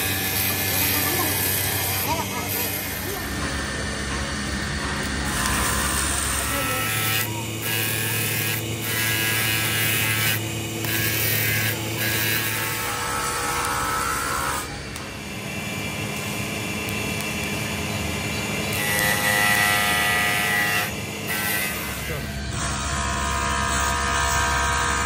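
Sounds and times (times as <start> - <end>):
welding arc crackling and hissing: 4.5 - 15.2.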